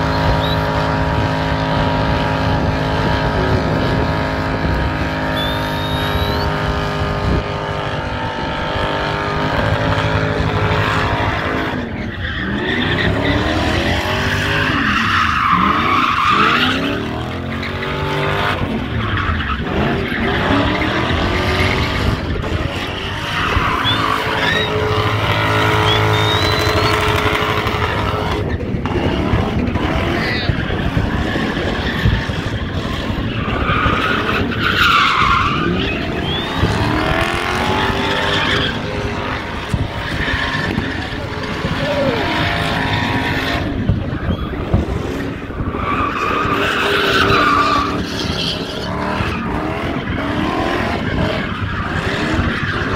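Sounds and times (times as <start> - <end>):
car engine revving high: 0.0 - 52.9
tyres squealing: 23.1 - 27.4, 33.3 - 39.1.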